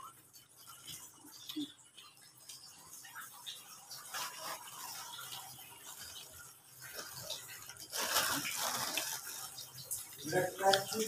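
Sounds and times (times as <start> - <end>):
foil wrapper crinkling: 3.9 - 11.0.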